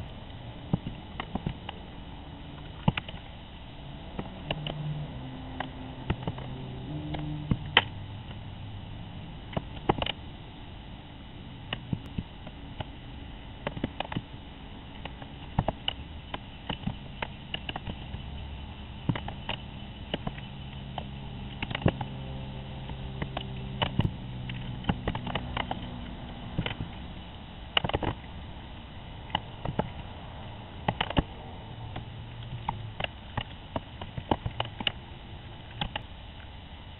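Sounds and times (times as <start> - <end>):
low steady hum: 0.0 - 36.9.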